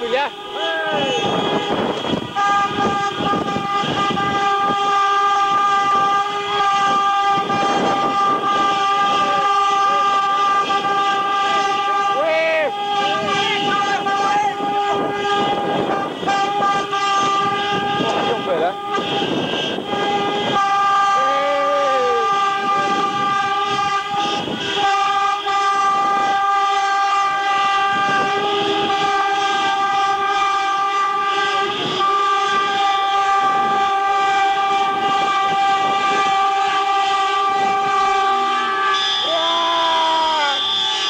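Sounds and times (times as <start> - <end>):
car horns honking: 0.0 - 41.0
people shouting: 21.1 - 22.4, 39.1 - 40.7.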